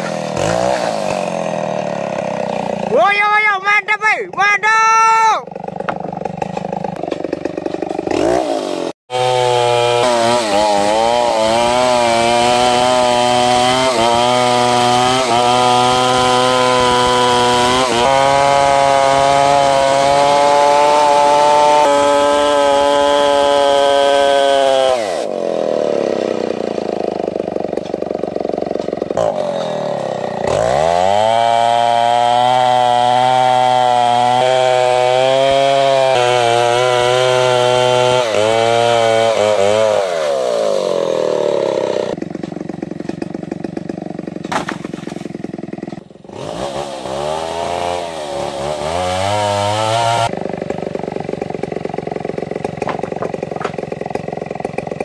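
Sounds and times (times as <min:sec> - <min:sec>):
chainsaw cutting wood: 0:00.0 - 0:04.7, 0:05.4 - 0:55.0.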